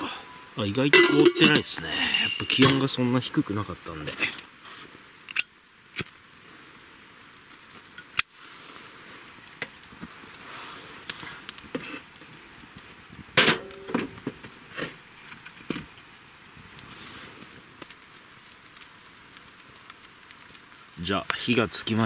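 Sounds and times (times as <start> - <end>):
firewood crackling and popping: 0.0 - 22.0
metallic clink: 1.0 - 2.9.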